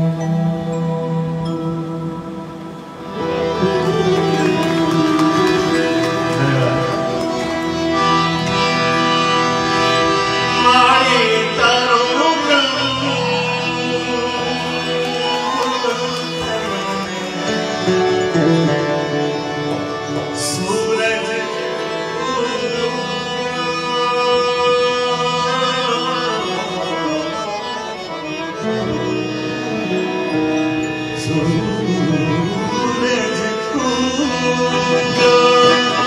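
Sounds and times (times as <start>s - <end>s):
harmonium: 0.0s - 36.0s
man singing: 10.5s - 27.8s, 31.2s - 36.0s.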